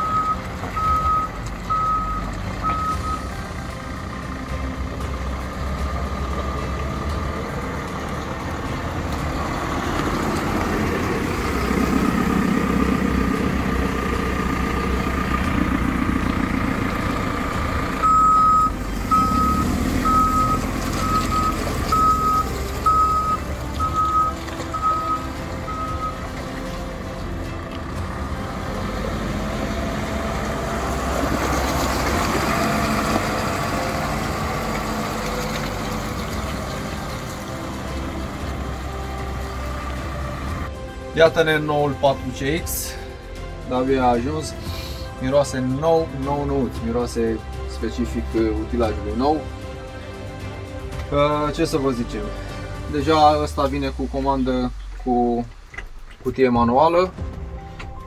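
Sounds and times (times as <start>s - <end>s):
reversing alarm beeps: 0.0s - 3.3s, 18.0s - 26.2s
diesel engine running: 0.0s - 58.0s.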